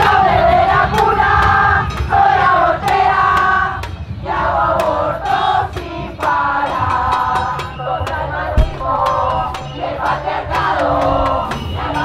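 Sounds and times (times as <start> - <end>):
crowd of women chanting: 0.0 - 12.0
sharp percussive hits: 4.8 - 12.0.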